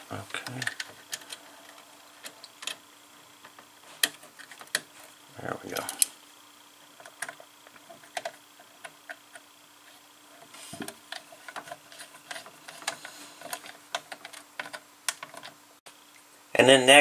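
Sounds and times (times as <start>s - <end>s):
wires clicking into terminals: 0.0s - 5.0s, 5.6s - 6.2s, 10.7s - 15.6s
faint steady hum: 0.0s - 17.0s.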